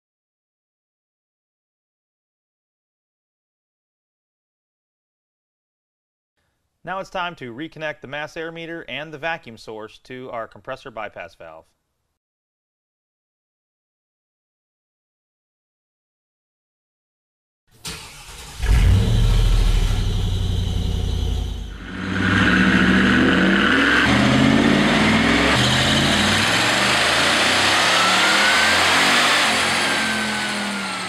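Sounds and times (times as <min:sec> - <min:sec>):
car engine revving: 0:17.9 - 0:31.0
supercharger whine rising: 0:18.3 - 0:31.0.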